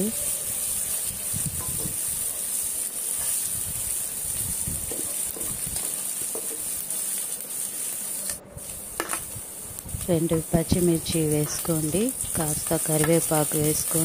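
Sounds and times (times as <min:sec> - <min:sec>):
onions sizzling in oil: 0:00.0 - 0:14.0.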